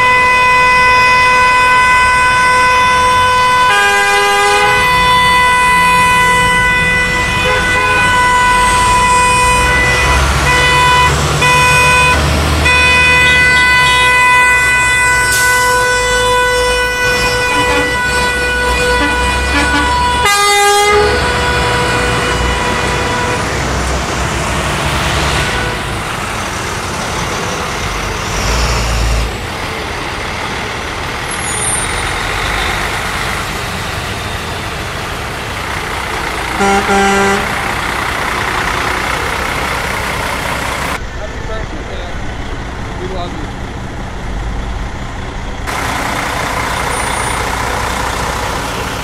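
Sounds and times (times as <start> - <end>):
short horn blasts: 0.0 - 23.9, 25.3 - 26.0, 36.5 - 37.6
heavy truck engines rumbling: 0.0 - 49.0
horn held on steady note: 36.6 - 37.6.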